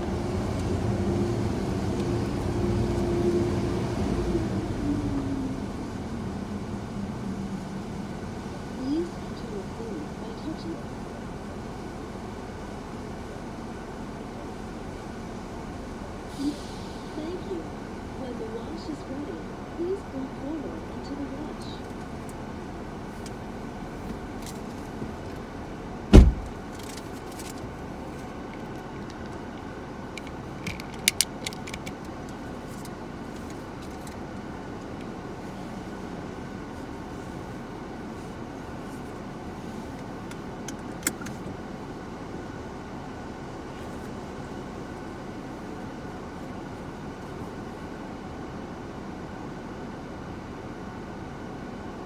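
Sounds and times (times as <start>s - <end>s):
car engine idling: 0.0s - 52.0s
car wash machinery rumble: 0.0s - 52.0s
loud short thump: 26.1s - 26.5s.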